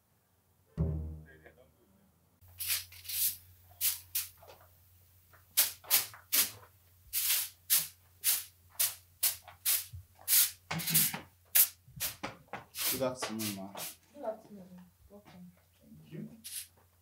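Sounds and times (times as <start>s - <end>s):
broom sweeping concrete floor: 2.5s - 4.6s, 5.4s - 14.0s, 16.4s - 16.8s.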